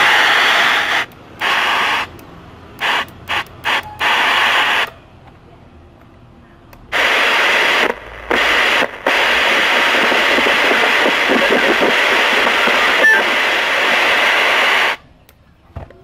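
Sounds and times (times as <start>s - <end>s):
radio static hiss: 0.0s - 2.2s, 2.8s - 5.0s, 6.9s - 15.0s
radio whistle: 2.8s - 5.0s, 7.0s - 15.0s.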